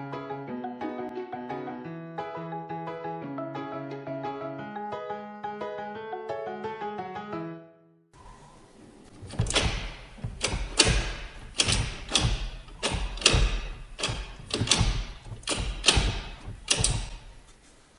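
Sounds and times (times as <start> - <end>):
gear lever clicks and clunks: 9.2 - 17.5.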